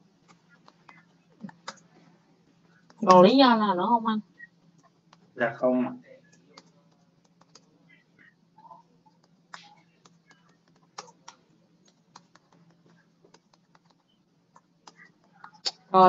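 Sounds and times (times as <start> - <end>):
low steady hum: 0.0 - 16.0
typing on keyboard: 6.3 - 7.7, 9.2 - 15.6.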